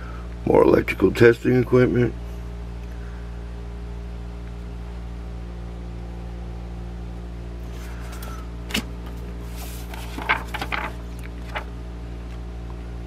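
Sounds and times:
low electrical hum: 0.0 - 13.0
book pages turning: 7.6 - 11.7
paper rustling and crackling: 7.6 - 11.7.

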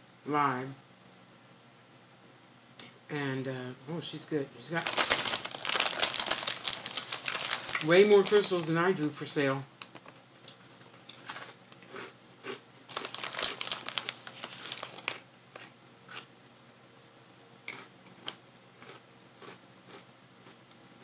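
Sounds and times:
potato chips crunching: 4.7 - 8.8, 9.8 - 16.3, 17.7 - 20.6
snack bag crinkling: 4.7 - 8.8, 9.8 - 16.3, 17.7 - 20.6.

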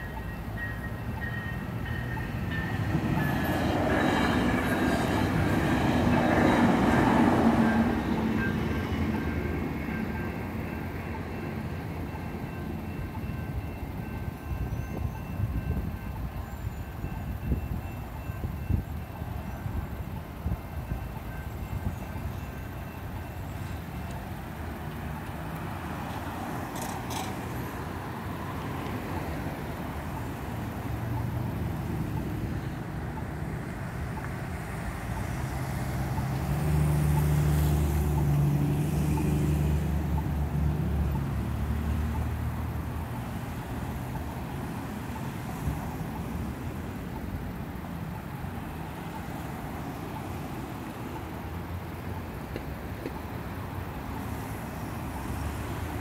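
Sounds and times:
cars driving past: 22.6 - 56.0.

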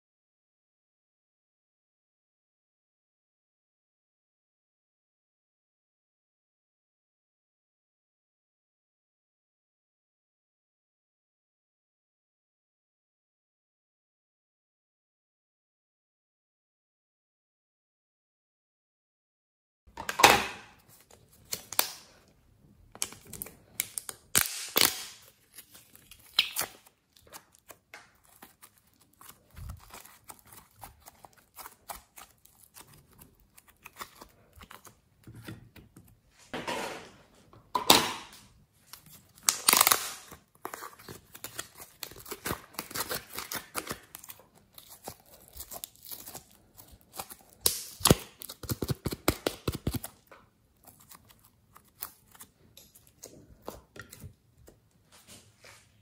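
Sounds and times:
plastic tubs crinkling: 22.9 - 55.5
slime crackling and popping: 23.0 - 34.9, 39.3 - 50.1.

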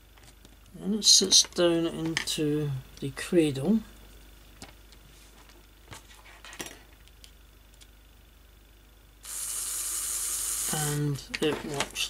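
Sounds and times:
small motor whirring: 9.2 - 11.2.

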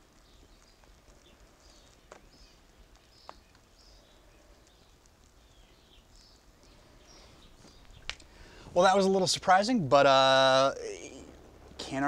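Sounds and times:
faint bird chirps: 0.0 - 8.6
fire crackling: 0.0 - 12.0.

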